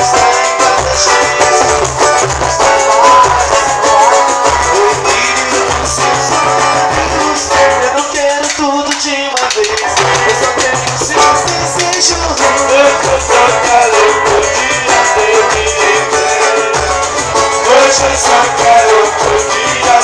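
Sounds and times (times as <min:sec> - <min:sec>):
man singing into a microphone: 0:00.0 - 0:20.0
small guitar strummed: 0:00.0 - 0:20.0
frame drum struck: 0:05.7 - 0:13.2
low pulsing beat: 0:09.7 - 0:13.6.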